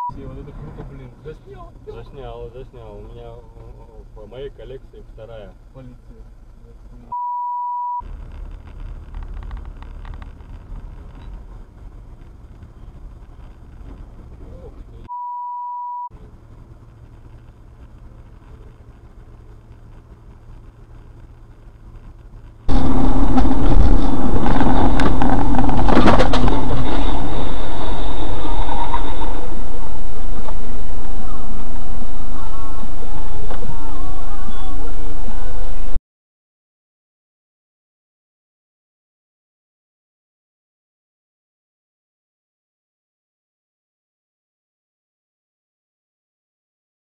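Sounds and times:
car cabin road noise: 0:00.0 - 0:07.2, 0:08.0 - 0:15.1, 0:16.1 - 0:36.0
high beep: 0:07.1 - 0:08.0, 0:15.1 - 0:16.1
harsh rush of noise: 0:08.0 - 0:15.1, 0:16.2 - 0:36.0
sharp hit: 0:22.7 - 0:36.0.

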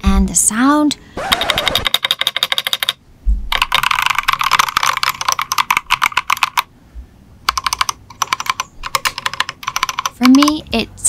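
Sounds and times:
mechanical keyboard key clacks: 0:01.3 - 0:06.7, 0:07.5 - 0:10.7.

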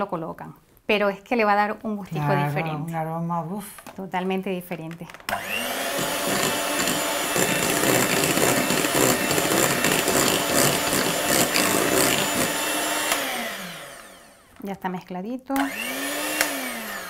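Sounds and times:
electric mixer motor whirring: 0:05.3 - 0:14.6, 0:15.6 - 0:17.0.

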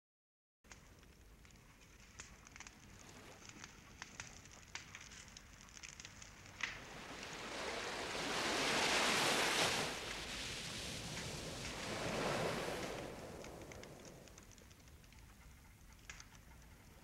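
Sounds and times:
faint clicks: 0:00.7 - 0:06.9, 0:11.0 - 0:17.0
surf wave rushing: 0:06.8 - 0:14.4.

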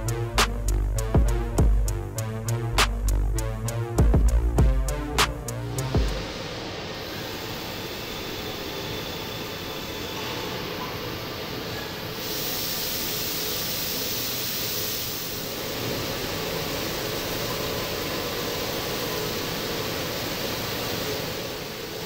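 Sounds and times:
machine running noise: 0:00.0 - 0:10.4
coolant spray hissing: 0:12.2 - 0:22.0.

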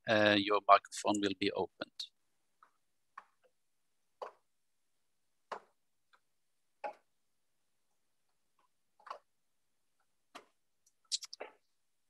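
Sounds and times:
faint clicks and taps: 0:02.5 - 0:04.5, 0:05.4 - 0:07.2, 0:07.9 - 0:11.7.

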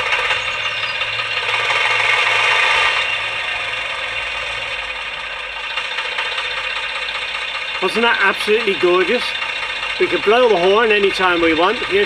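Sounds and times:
diesel engine sound through small speaker: 0:00.0 - 0:12.0.

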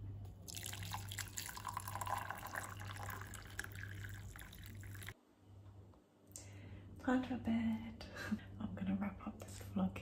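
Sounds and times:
water pouring into mug: 0:00.5 - 0:05.2.

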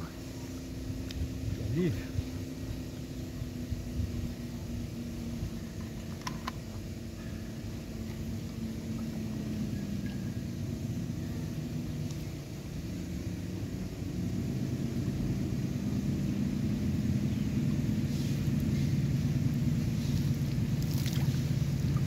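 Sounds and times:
low engine hum: 0:00.0 - 0:22.0
water splashing over head: 0:20.3 - 0:22.0.

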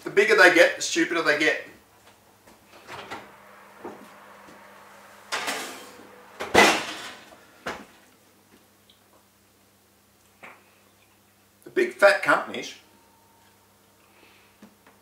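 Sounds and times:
dish sliding onto oven rack: 0:02.7 - 0:03.6, 0:04.5 - 0:07.9.

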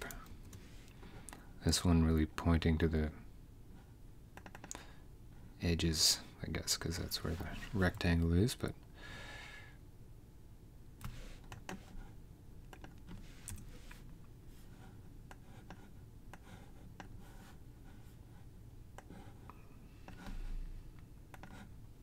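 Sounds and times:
low steady hum: 0:00.0 - 0:22.0
mouse and keyboard clicks: 0:04.4 - 0:04.8.

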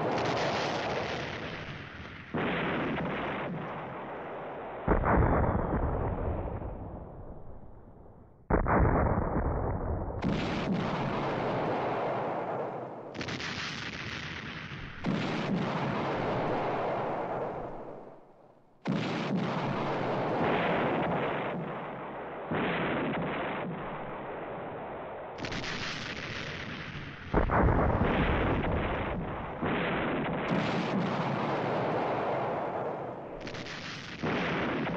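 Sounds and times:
heavy explosions rumbling: 0:14.4 - 0:17.8, 0:25.6 - 0:34.9.

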